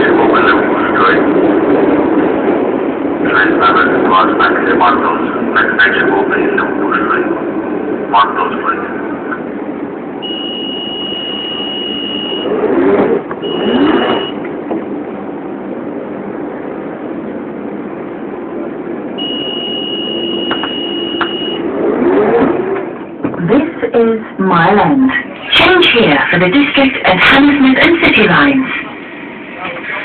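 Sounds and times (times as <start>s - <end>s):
train hum and rumble: 0.0s - 13.5s, 14.2s - 30.0s
high electronic tone: 10.2s - 14.4s, 19.2s - 21.7s.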